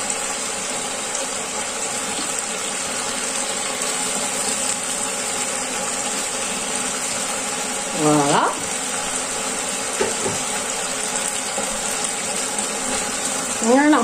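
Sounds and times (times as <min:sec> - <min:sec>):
food sizzling in a pan: 0:00.0 - 0:14.0.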